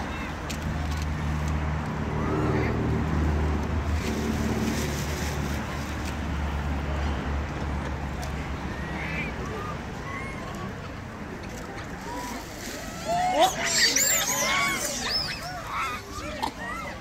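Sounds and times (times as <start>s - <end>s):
short high calls: 12.9s - 16.2s.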